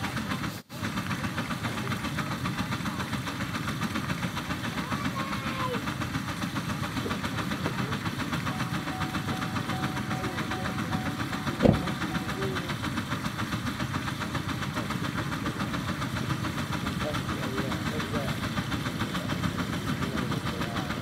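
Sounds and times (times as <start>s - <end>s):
steam engine chuffing: 0.0s - 21.0s.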